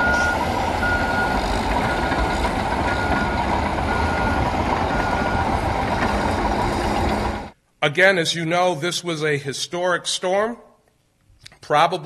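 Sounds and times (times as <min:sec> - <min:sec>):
reversing alarm beeps: 0:00.0 - 0:06.2
low machinery rumble: 0:00.0 - 0:07.6.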